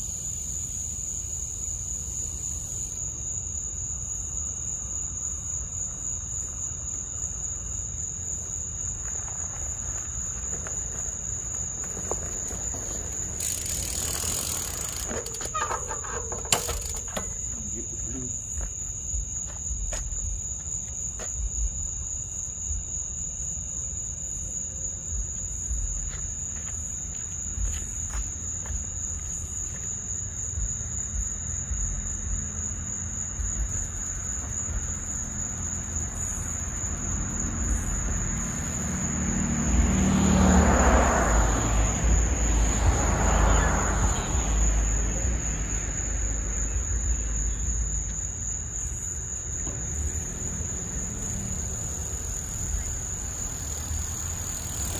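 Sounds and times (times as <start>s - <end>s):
crickets trilling: 0.0s - 54.9s.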